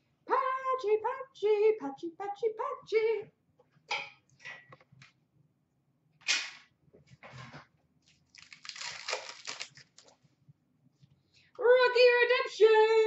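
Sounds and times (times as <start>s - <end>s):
trading cards rustling: 8.3s - 10.1s.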